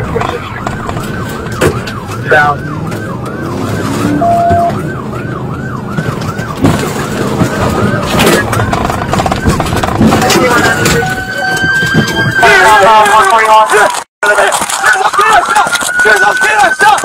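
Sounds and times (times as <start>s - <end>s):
car engine: 0.0s - 11.0s
police siren yelping: 0.0s - 13.3s, 14.9s - 17.0s
road noise: 0.0s - 17.0s.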